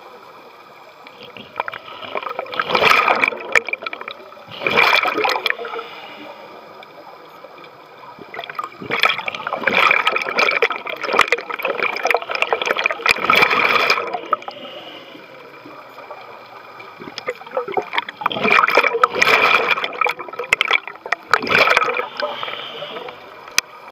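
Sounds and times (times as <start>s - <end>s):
bubbles gurgling underwater: 1.2s - 5.8s, 8.0s - 15.0s, 15.6s - 23.6s
diver breathing through regulator: 4.5s - 6.8s, 13.9s - 15.6s, 21.6s - 23.4s.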